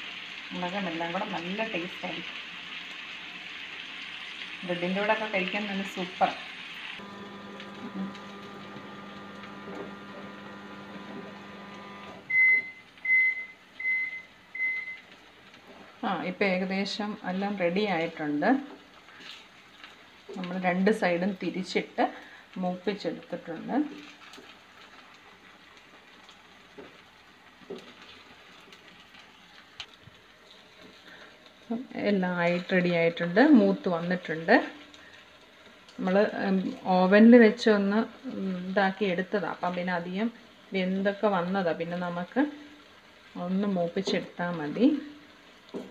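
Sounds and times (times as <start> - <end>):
chicken sizzling in a pan: 0.0 - 12.4, 14.6 - 45.9
microwave oven humming: 6.1 - 15.2.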